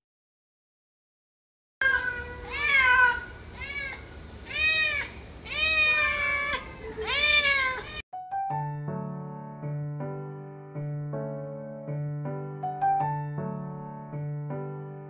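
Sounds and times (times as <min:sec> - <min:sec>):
cat meowing: 0:01.8 - 0:08.0
soft piano music: 0:08.1 - 0:15.0.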